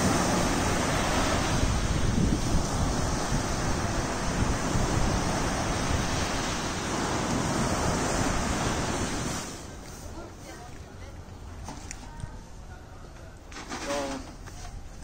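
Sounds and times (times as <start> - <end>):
wind buffeting microphone: 0.0 - 9.8
sea waves breaking on beach: 0.0 - 10.5.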